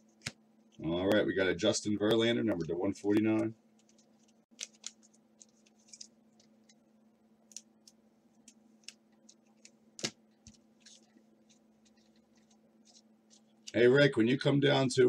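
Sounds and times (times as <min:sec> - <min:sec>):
faint steady hum: 0:00.0 - 0:15.0
trading cards flicking: 0:03.0 - 0:06.8, 0:07.5 - 0:13.8.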